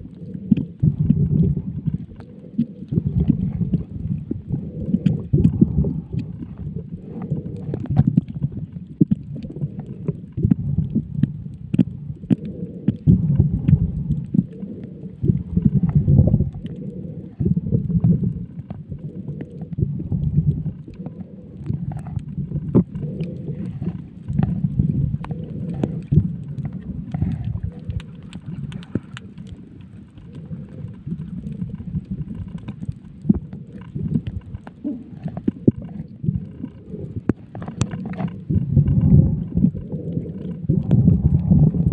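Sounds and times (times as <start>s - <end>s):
underwater clicks and pops: 0.0s - 41.9s
underwater rumble of moving water: 0.0s - 41.9s.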